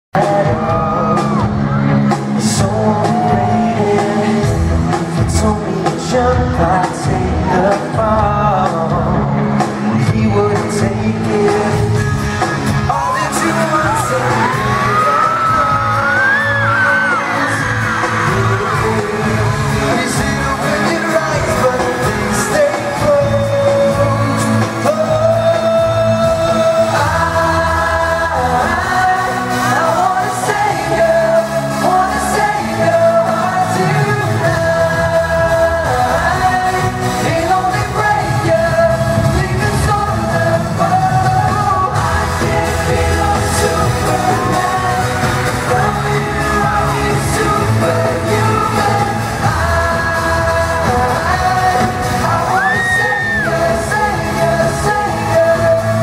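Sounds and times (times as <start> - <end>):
live pop band with male vocals: 0.2 - 56.0.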